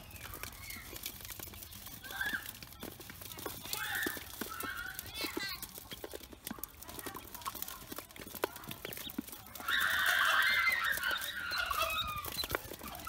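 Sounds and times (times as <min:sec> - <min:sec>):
bills tapping a feeding bowl: 0:00.0 - 0:13.0
ducklings peeping: 0:07.1 - 0:13.0.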